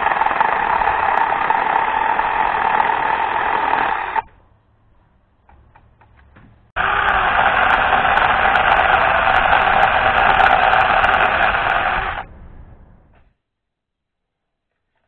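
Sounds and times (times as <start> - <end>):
mini chainsaw cutting branch: 0.0 - 4.3, 6.8 - 12.3.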